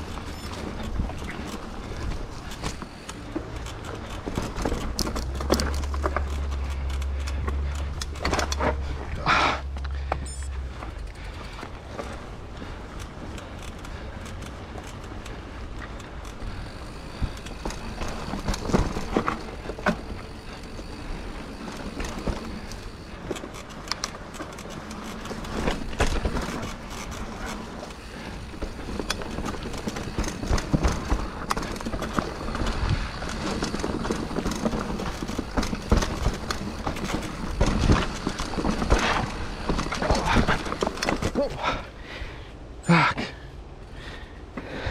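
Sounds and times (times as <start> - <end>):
bike knocks and rattles: 0.0 - 41.9
bike tyre rumble on dirt: 0.0 - 44.9.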